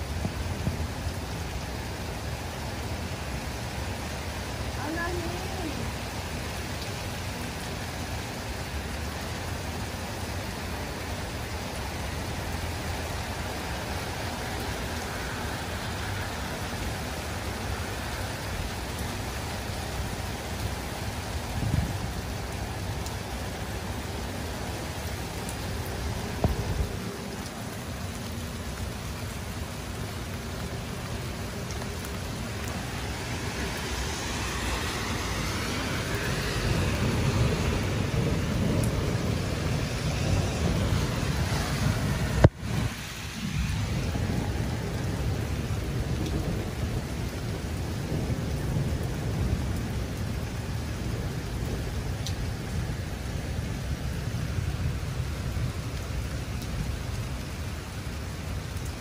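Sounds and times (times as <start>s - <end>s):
thunder rumbling: 0.0s - 1.3s, 32.4s - 55.9s
heavy rain: 0.0s - 59.0s.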